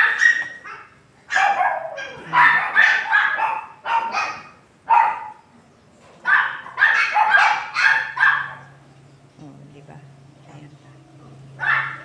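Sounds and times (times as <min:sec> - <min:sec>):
dog barking: 0:00.0 - 0:05.4, 0:06.2 - 0:08.8, 0:11.6 - 0:12.0.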